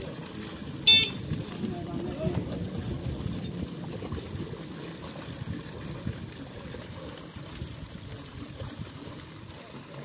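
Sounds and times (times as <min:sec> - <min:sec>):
fish thrashing and splashing: 0:00.0 - 0:10.0.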